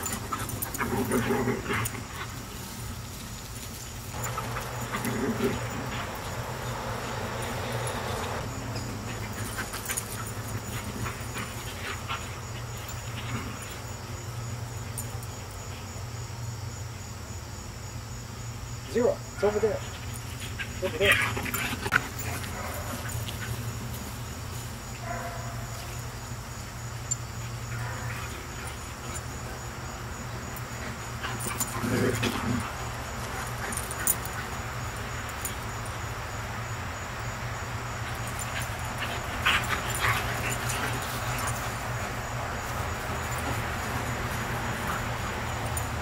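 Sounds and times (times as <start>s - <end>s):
steady low hum: 4.0s - 11.6s.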